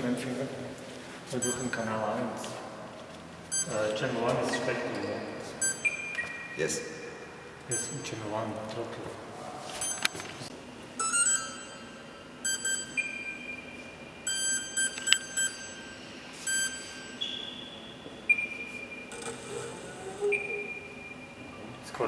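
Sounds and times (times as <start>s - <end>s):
electronic beeps: 1.4s - 2.1s, 3.5s - 8.2s, 9.8s - 10.3s, 11.0s - 21.6s
longer electronic tones: 5.6s - 6.6s, 11.0s - 21.8s.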